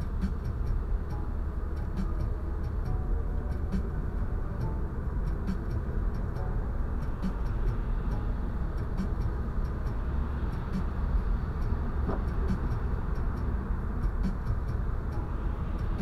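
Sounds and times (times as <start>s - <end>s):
tyre noise on wet road: 6.9s - 16.0s.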